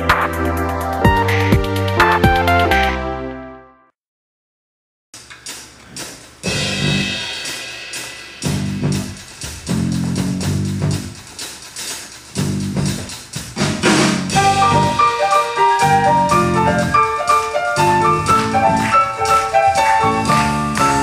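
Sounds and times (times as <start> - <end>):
drum kit beat: 0.0 - 2.8, 5.2 - 21.0
bass and guitar: 8.5 - 11.1, 12.4 - 15.0, 15.8 - 17.0, 17.8 - 21.0.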